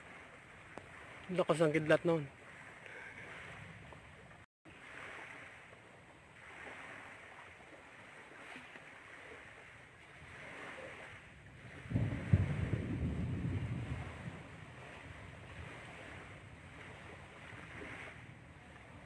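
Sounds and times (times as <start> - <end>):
low choppy rumble: 11.2 - 19.0.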